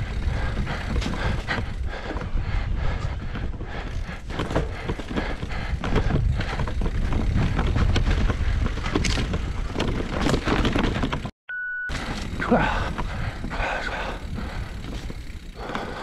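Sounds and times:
bike knocking and rattling: 0:00.0 - 0:11.3, 0:11.9 - 0:16.0
tyres rolling over dirt and roots: 0:03.7 - 0:11.3.

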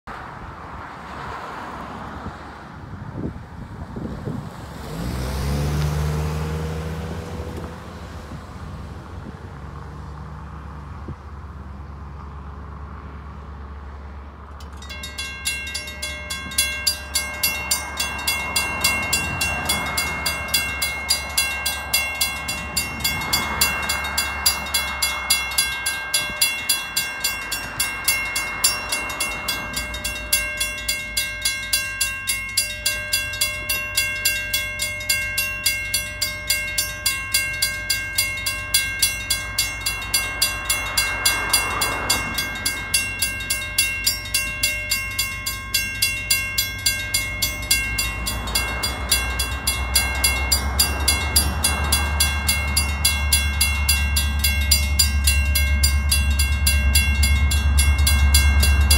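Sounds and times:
vehicle passing by: 0:00.1 - 0:58.9
crossing warning bell ringing: 0:14.4 - 0:58.9.

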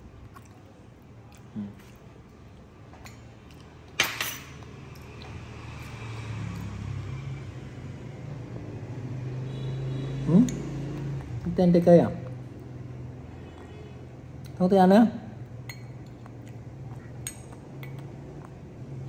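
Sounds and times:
metal fork clinking on ceramic dish: 0:04.0 - 0:04.6, 0:15.7 - 0:16.2, 0:17.2 - 0:18.0.

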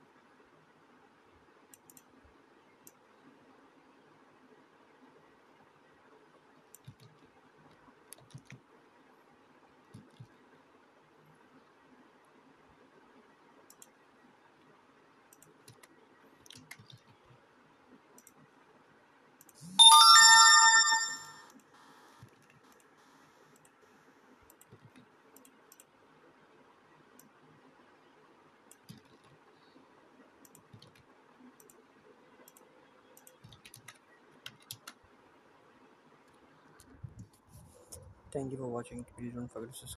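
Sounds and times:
smartphone notification chime: 0:19.8 - 0:21.4.

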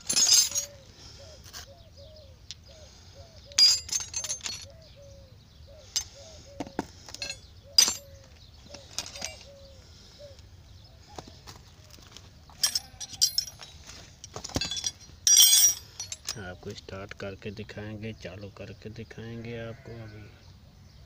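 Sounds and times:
metal wrenches clinking together: 0:00.0 - 0:00.8, 0:03.5 - 0:04.8, 0:07.1 - 0:09.6, 0:12.5 - 0:16.5.

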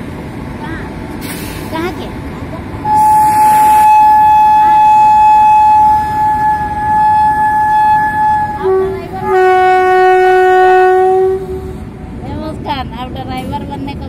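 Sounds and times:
freight wagons rumbling: 0:00.0 - 0:14.0
locomotive horn: 0:02.8 - 0:11.8.

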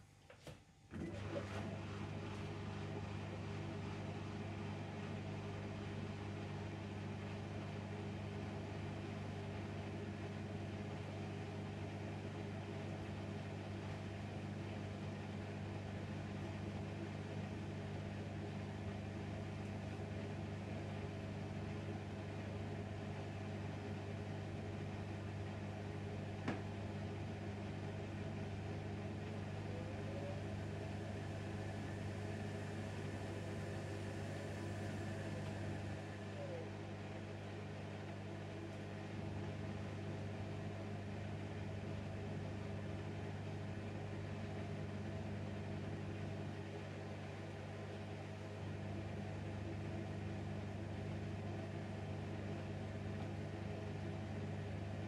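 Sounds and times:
washing machine humming: 0:00.0 - 0:55.0.

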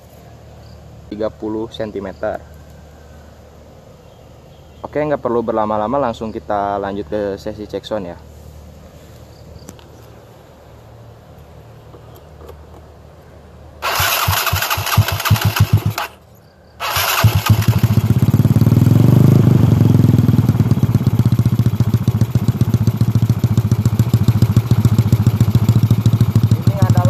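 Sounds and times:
scooter electric starter cranking: 0:13.8 - 0:16.2, 0:16.8 - 0:18.4
scooter engine idling: 0:13.8 - 0:16.2, 0:16.8 - 0:27.0.

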